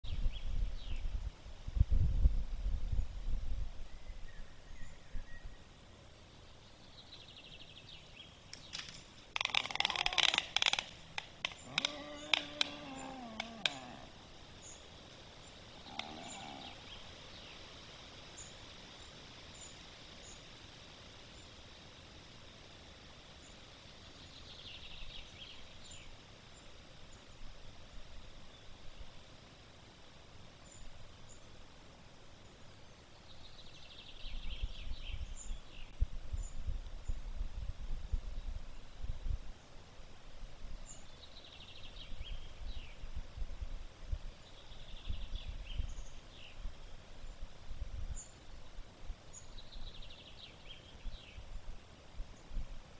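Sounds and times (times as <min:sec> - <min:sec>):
rapid rattling bird trill: 0:08.7 - 0:17.7
faint high bird chirps: 0:11.4 - 0:17.6.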